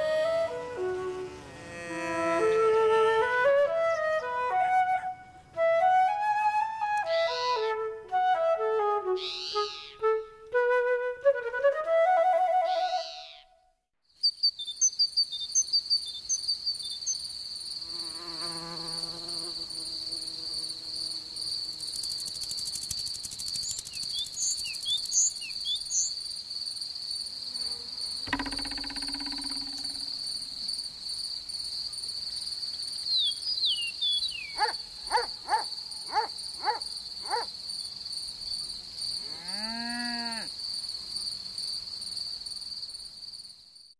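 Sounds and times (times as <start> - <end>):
rising and falling call: 9.1 - 10.2
crickets chirring: 14.1 - 43.9.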